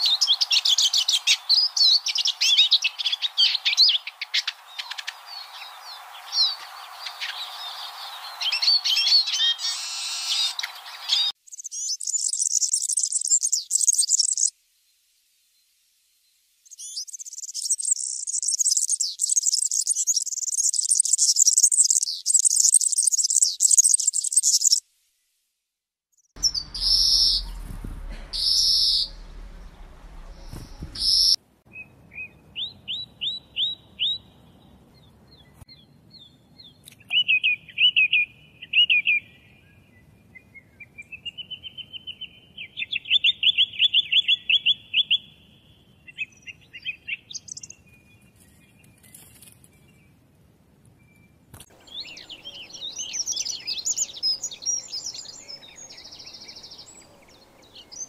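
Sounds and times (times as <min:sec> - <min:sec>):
birds twittering jingling song: 0:00.0 - 0:14.5, 0:16.7 - 0:24.8, 0:26.4 - 0:50.3, 0:50.9 - 0:58.0
loud drawn-out bird calls: 0:00.0 - 0:14.5, 0:26.4 - 0:31.4, 0:51.7 - 0:58.0.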